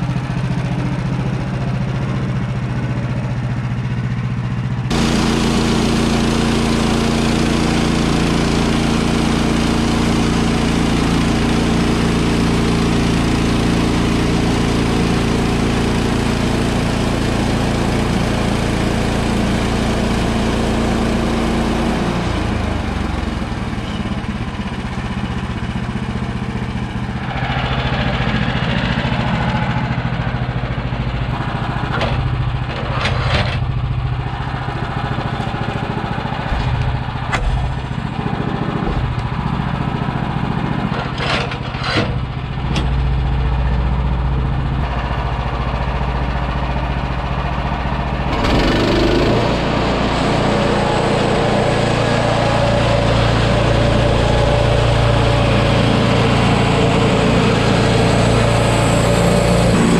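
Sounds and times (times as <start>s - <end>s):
sawmill engine running: 0.0s - 59.9s
band saw cutting log: 4.9s - 11.8s, 48.2s - 59.9s.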